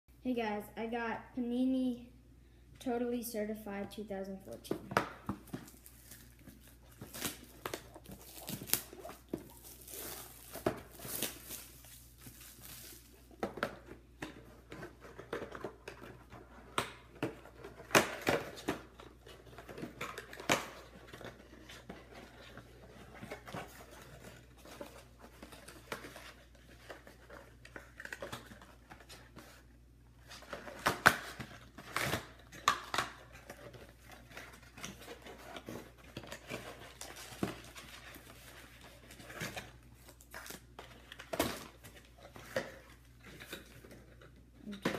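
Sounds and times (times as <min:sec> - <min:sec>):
shrink wrap tearing and crinkling: 0:05.6 - 0:13.4, 0:30.2 - 0:44.8.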